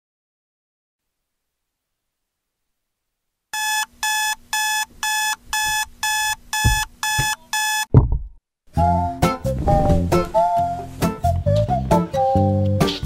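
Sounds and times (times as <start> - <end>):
alarm clock beeping: 3.6 - 7.9
loud thump: 6.6 - 8.4, 9.6 - 10.4.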